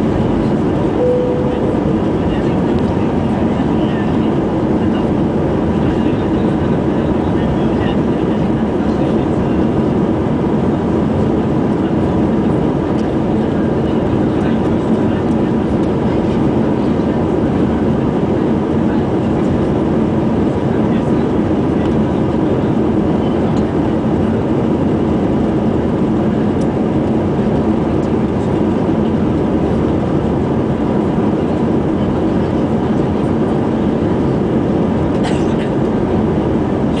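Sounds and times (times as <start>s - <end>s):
jet engines roaring: 0.0s - 7.0s
faint steady hum: 1.0s - 4.0s.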